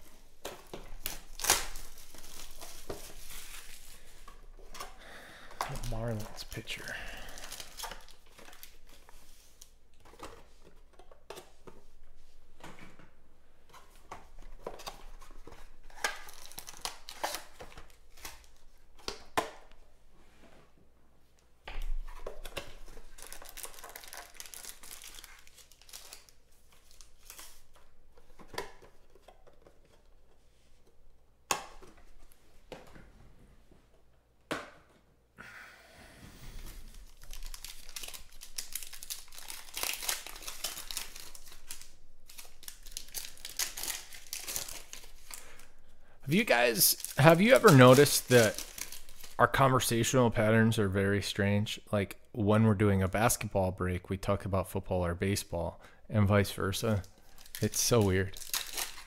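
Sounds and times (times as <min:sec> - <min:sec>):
foil wrappers crinkling and tearing: 0:00.0 - 0:10.9, 0:13.8 - 0:18.7, 0:22.3 - 0:29.9, 0:36.7 - 0:50.2, 0:56.6 - 0:59.0
cards clicking and rustling: 0:00.0 - 0:12.0, 0:13.7 - 0:19.8, 0:21.7 - 0:33.0, 0:36.8 - 0:49.9, 0:56.6 - 0:59.0.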